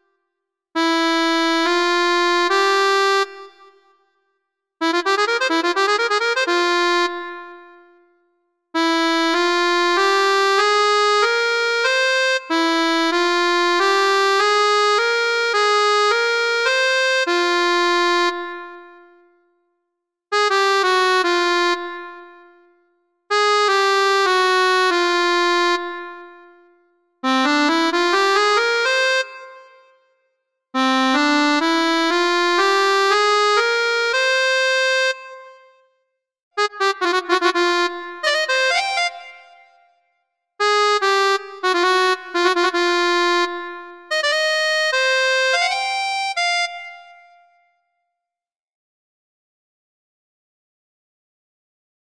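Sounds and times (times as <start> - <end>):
electronic keyboard melody: 4.8 - 8.2, 8.8 - 19.3, 20.3 - 30.0, 30.8 - 35.8, 36.6 - 40.0, 40.6 - 47.6.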